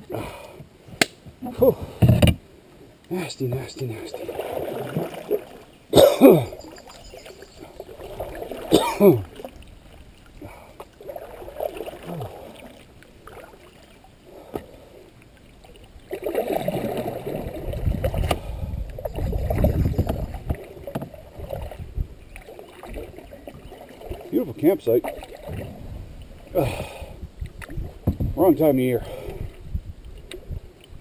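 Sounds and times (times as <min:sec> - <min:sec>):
water swishing along hull: 0:00.0 - 0:31.0
paddle strokes in water: 0:03.4 - 0:05.8, 0:06.4 - 0:28.4.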